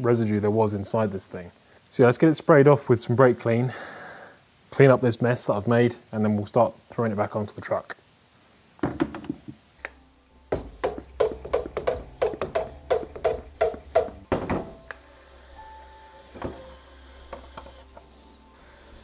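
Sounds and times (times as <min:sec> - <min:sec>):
soft background music: 0:09.8 - 0:19.0.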